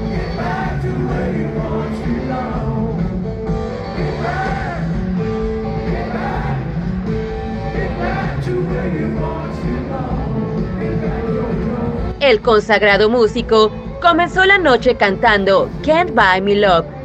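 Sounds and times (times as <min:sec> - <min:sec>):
man singing lead: 0:00.0 - 0:03.2, 0:03.8 - 0:05.0, 0:07.6 - 0:12.2
live rock band: 0:00.0 - 0:12.2.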